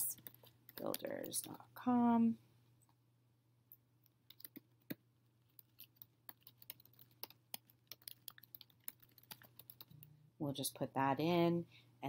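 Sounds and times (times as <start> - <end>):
typing on computer keyboard: 0.1 - 1.6, 4.3 - 10.1.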